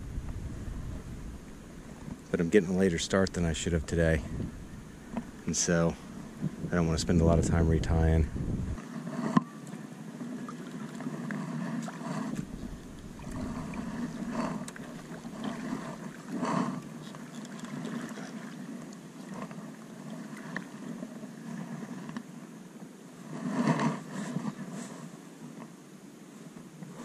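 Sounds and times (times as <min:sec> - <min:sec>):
water lapping at hull: 0:00.0 - 0:25.6
paddle splashing in water: 0:08.8 - 0:22.2.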